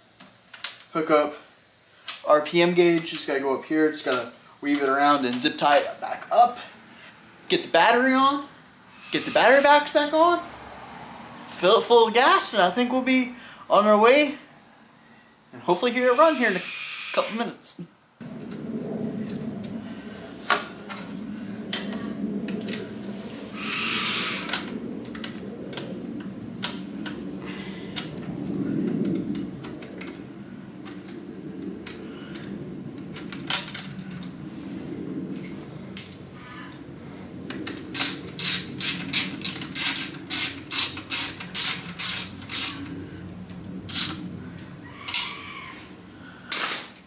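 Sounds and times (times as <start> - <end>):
tools clicking and knocking: 37.5 - 42.9
ratchet rasping strokes: 37.9 - 42.9.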